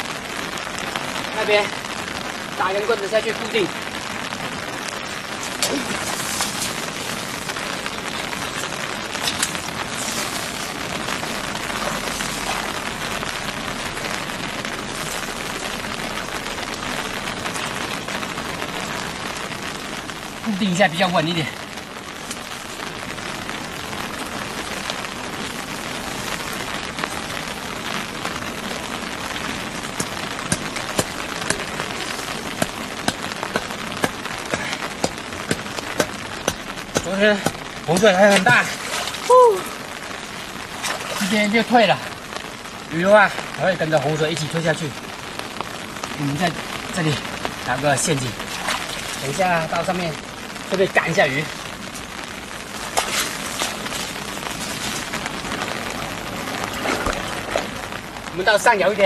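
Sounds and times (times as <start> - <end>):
floodwater rushing in canal: 0.0 - 59.0
wooden stake being pounded: 30.0 - 38.7.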